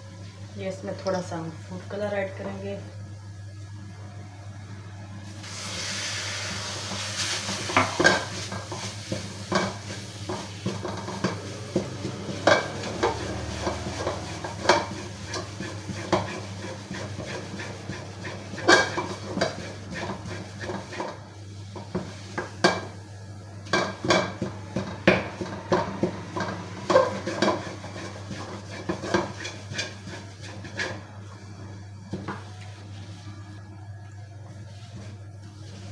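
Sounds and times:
hiss in hot pan: 0:05.2 - 0:33.8
wooden spatula scraping a pan: 0:06.6 - 0:22.9, 0:23.6 - 0:31.2, 0:34.4 - 0:35.9.

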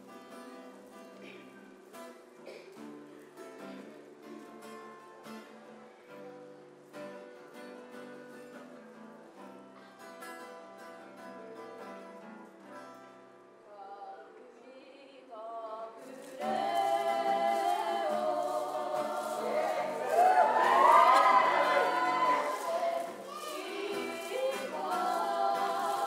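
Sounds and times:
person singing: 0:15.4 - 0:26.0
group singing in unison: 0:16.0 - 0:26.0
acoustic guitar picking: 0:16.3 - 0:26.0.

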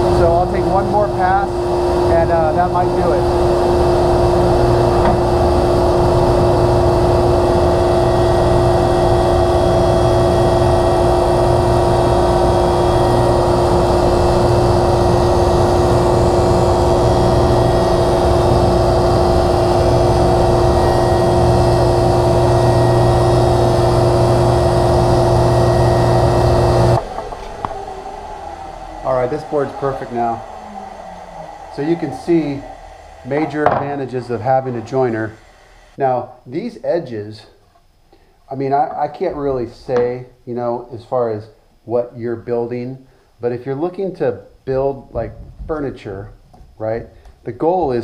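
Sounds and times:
jointer cutting wood: 0:00.0 - 0:36.0.

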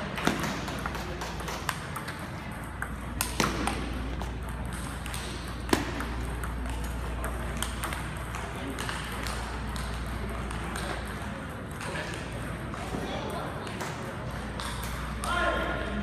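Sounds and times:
faint distant ping pong clicks: 0:00.1 - 0:15.4.

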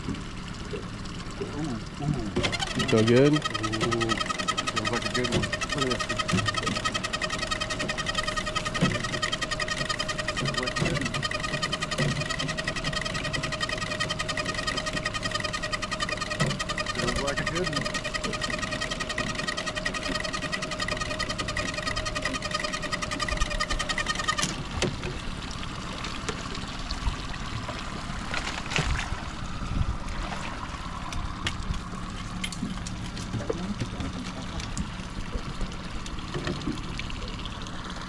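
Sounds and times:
water splashing and trickling: 0:00.0 - 0:38.0
small motor whining: 0:01.0 - 0:32.9.

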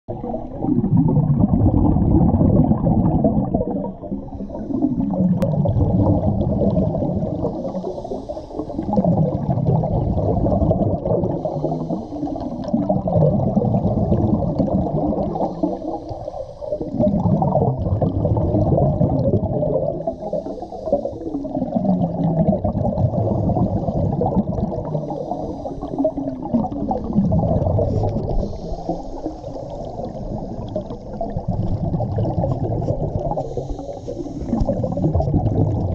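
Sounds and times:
underwater regulator bubbling: 0:00.1 - 0:35.9
faint regulator hiss: 0:20.0 - 0:21.5, 0:27.8 - 0:31.2, 0:33.1 - 0:35.1.

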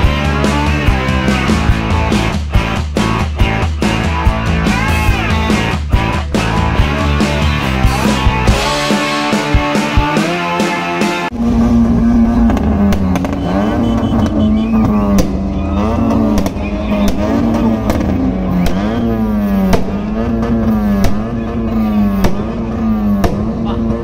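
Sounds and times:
car engine revving: 0:00.0 - 0:24.0
exhaust cracks: 0:11.3 - 0:24.0.

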